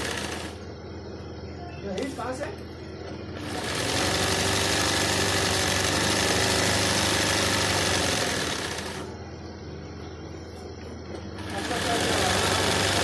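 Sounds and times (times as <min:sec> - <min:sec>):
sewing machine running fast: 0:00.0 - 0:00.6, 0:03.4 - 0:09.1, 0:11.4 - 0:13.0.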